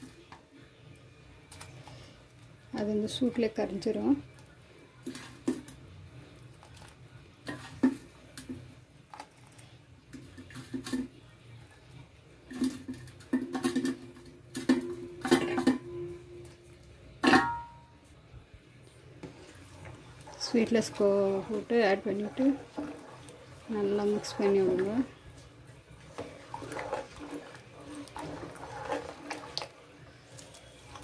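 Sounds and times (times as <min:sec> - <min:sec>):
pot and utensils clinking: 0:12.5 - 0:16.5, 0:17.2 - 0:17.9.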